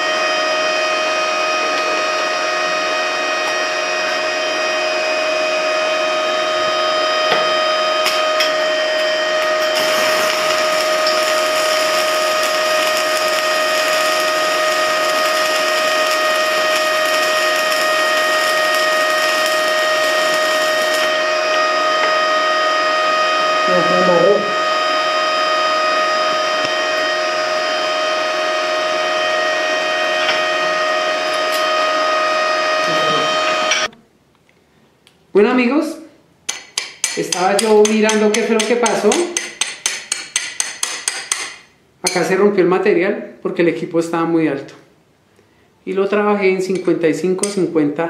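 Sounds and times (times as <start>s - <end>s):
welding machine whine: 0.0s - 34.0s
welding arc crackle and sizzle: 8.0s - 22.3s.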